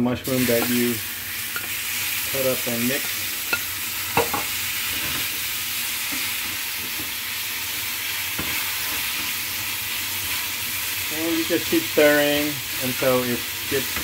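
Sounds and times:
mushrooms sizzling in frying pan: 0:00.0 - 0:14.0.

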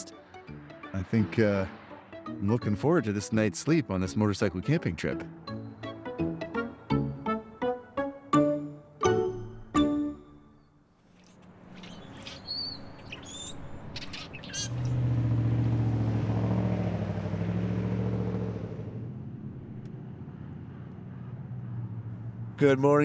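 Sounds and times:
car passing by: 0:00.0 - 0:03.6, 0:11.2 - 0:23.0
small birds chirping: 0:11.6 - 0:15.0.

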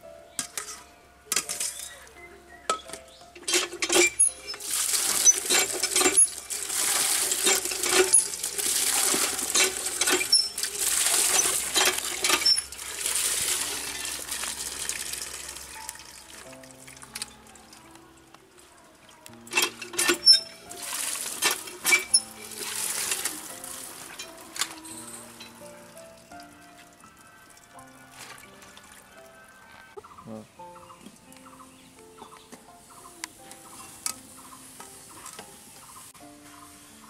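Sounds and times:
taro pieces clinking into steel pot: 0:02.7 - 0:12.7
water gushing and splashing: 0:03.5 - 0:17.8, 0:19.5 - 0:25.7.

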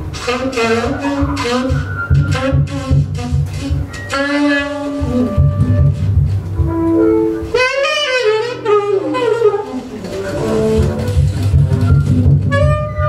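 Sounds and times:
bass and drums pulse: 0:00.0 - 0:07.6, 0:10.4 - 0:13.0
tenor saxophone improvising: 0:00.0 - 0:13.0.

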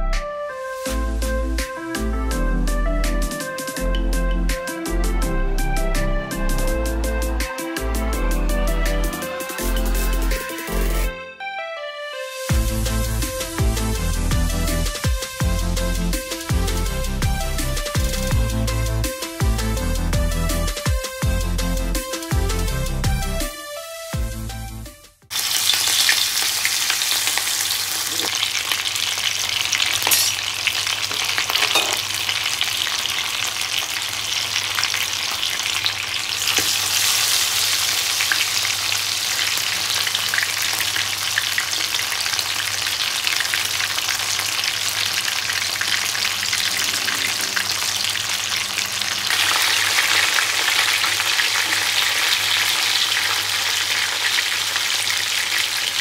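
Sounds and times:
fish sizzling in hot oil: 0:12.5 - 0:18.2, 0:25.3 - 0:56.0.

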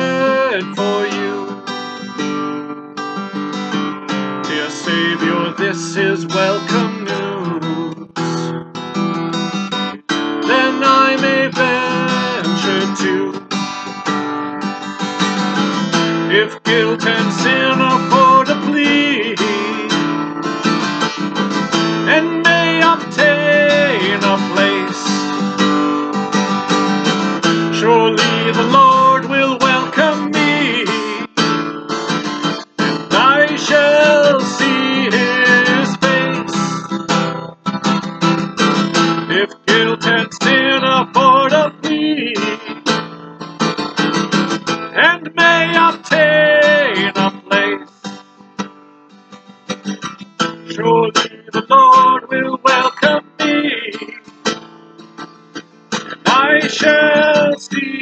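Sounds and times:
man singing a hymn: 0:00.0 - 0:01.6, 0:04.5 - 0:08.2, 0:10.5 - 0:13.5, 0:16.3 - 0:20.1, 0:22.1 - 0:25.2, 0:27.7 - 0:31.4, 0:33.1 - 0:36.7, 0:39.3 - 0:42.8, 0:45.0 - 0:47.9, 0:50.7 - 0:54.1, 0:56.2 - 0:58.0
strummed acoustic guitar: 0:00.0 - 0:58.0.

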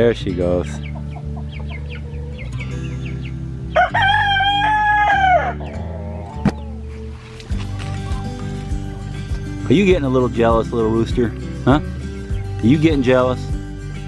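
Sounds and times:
rooster crowing: 0:03.8 - 0:06.3.

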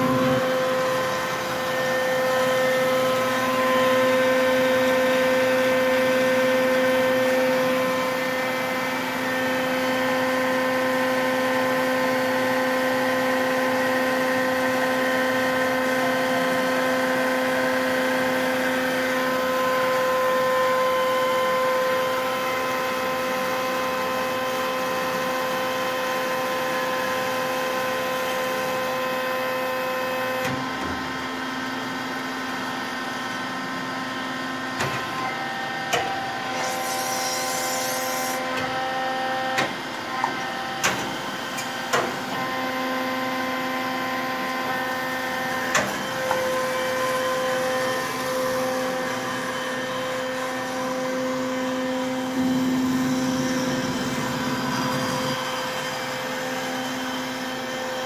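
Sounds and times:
bandsaw cutting metal: 0:00.0 - 0:04.9, 0:35.9 - 0:38.7, 0:45.5 - 0:58.0.

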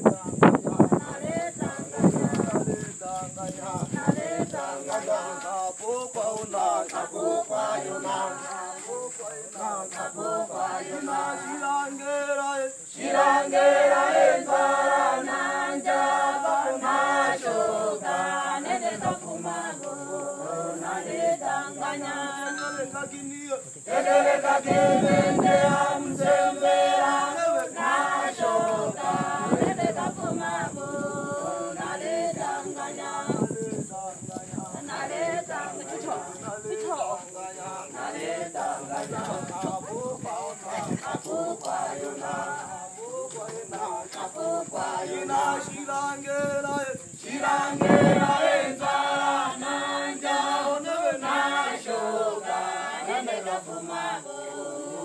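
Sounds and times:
group singing unaccompanied: 0:00.0 - 0:55.0.

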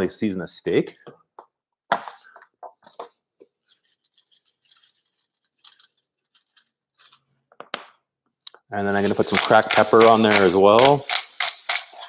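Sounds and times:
spice shaker rattling: 0:08.9 - 0:12.0.

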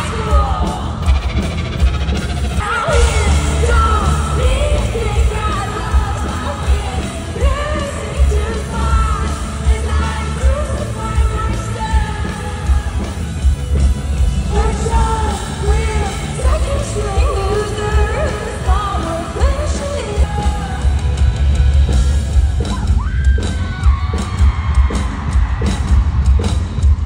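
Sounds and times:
person singing: 0:02.6 - 0:13.3, 0:14.4 - 0:21.0.

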